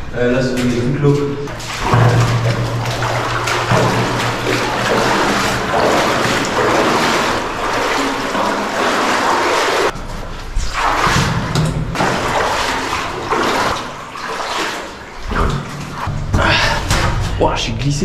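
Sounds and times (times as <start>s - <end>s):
footsteps splashing through water: 1.2s - 16.1s.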